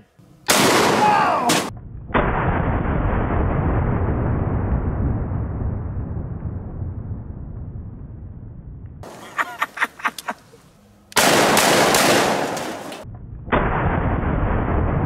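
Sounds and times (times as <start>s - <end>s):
shotgun blast: 0.5s - 4.1s, 11.2s - 15.0s
muffled low rumble: 1.7s - 9.0s.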